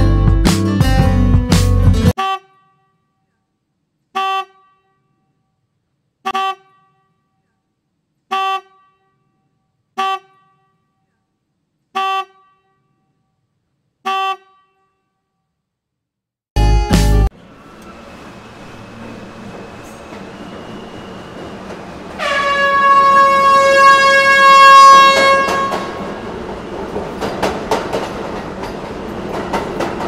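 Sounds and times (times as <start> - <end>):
vehicle horn toots: 2.2 - 3.2, 4.1 - 5.4, 6.2 - 7.5, 8.3 - 11.1, 11.9 - 13.3, 14.0 - 15.3, 22.2 - 26.0.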